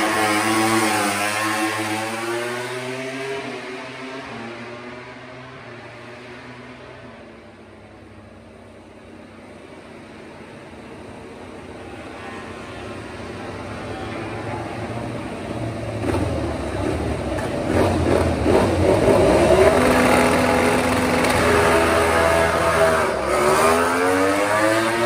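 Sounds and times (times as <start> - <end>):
racing motorcycle engine: 0.0 - 7.4, 10.4 - 25.0.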